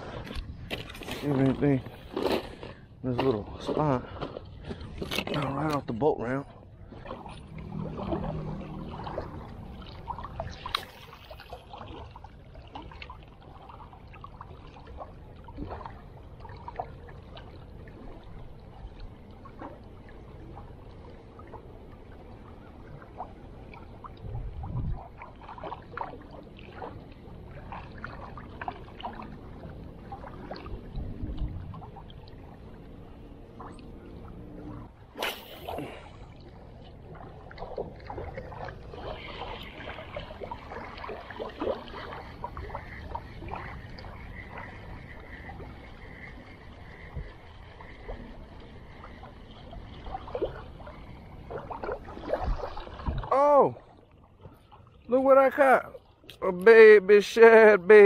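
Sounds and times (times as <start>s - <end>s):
waves lapping against rocks: 0.0s - 20.8s, 33.4s - 58.0s
short whoosh: 35.2s - 36.1s.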